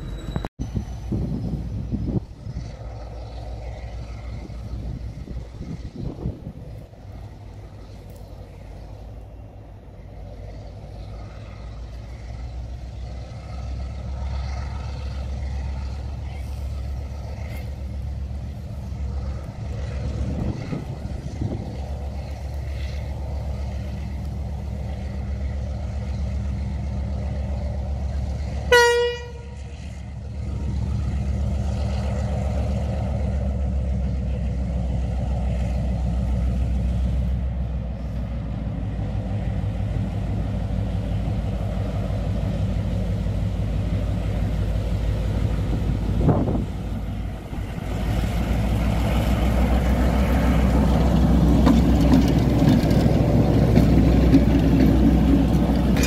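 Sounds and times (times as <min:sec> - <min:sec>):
diesel locomotive engine drone: 0:00.0 - 0:56.0
locomotive horn blast: 0:28.6 - 0:29.8.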